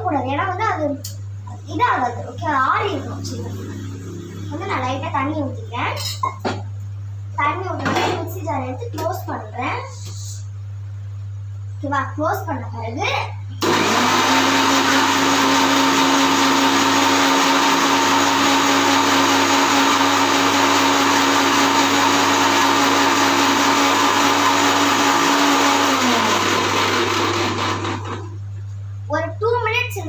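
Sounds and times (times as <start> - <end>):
mixer grinder whirring: 13.6 - 28.4.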